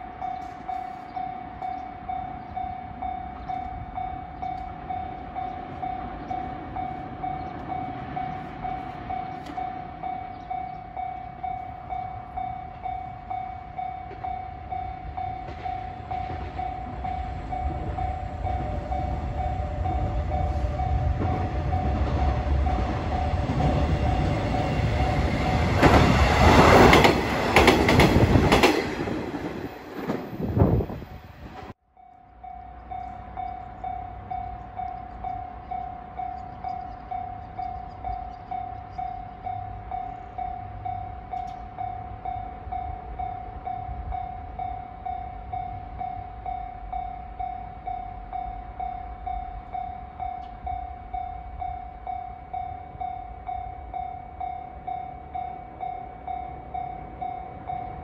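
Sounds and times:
diesel train rumble: 0:00.0 - 0:58.0
train wheels clacking over joints: 0:25.5 - 0:29.4.

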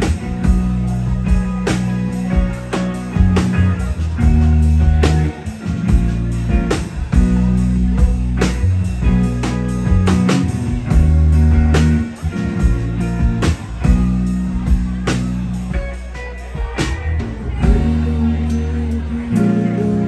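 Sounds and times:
electric bass notes: 0:00.0 - 0:20.0
electric guitar: 0:00.0 - 0:20.0.

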